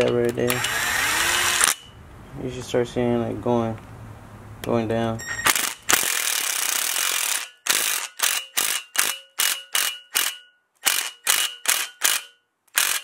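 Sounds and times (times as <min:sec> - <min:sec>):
electric tool pulsing: 0:00.6 - 0:01.8, 0:05.5 - 0:12.2.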